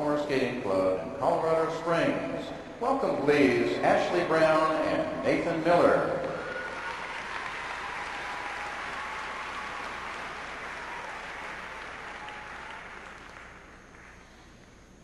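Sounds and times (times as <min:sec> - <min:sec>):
audience applauding: 0:06.2 - 0:14.2.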